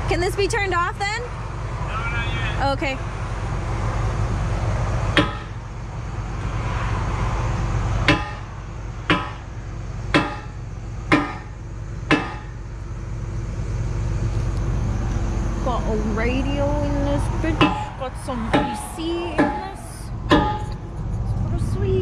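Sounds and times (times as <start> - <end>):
diesel engine running: 0.0 - 22.0
hammer striking steel pin: 8.1 - 8.4, 9.1 - 9.4, 10.1 - 11.5, 12.1 - 12.5.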